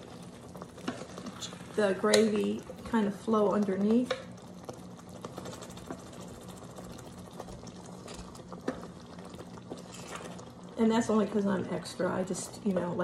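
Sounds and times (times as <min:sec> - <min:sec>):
spatula scraping in pot: 0:09.7 - 0:10.5.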